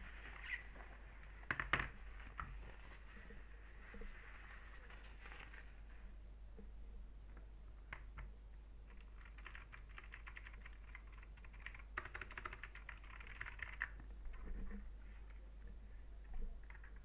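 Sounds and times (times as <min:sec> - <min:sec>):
clicky keyboard typing: 0:08.9 - 0:14.4.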